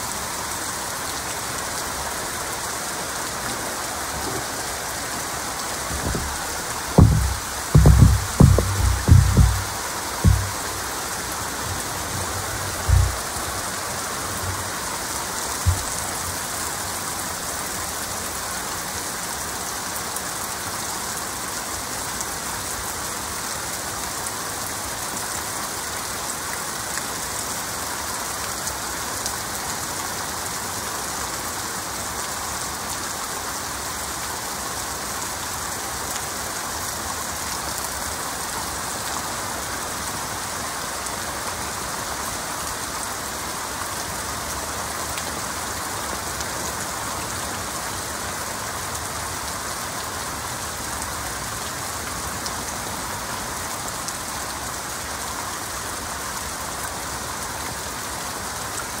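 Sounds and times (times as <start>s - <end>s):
heavy rain: 0.0s - 59.0s
low thumps: 5.6s - 13.5s, 15.6s - 16.0s.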